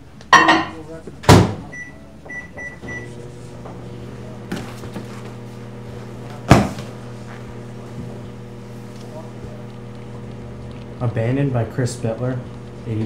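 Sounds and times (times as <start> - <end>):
microwave oven humming: 0.0 - 13.0
keypad beeps: 1.7 - 3.1.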